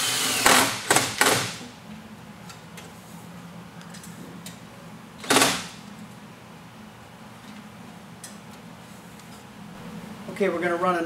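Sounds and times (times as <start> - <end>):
cordless drill driving screw: 0.0 - 1.5.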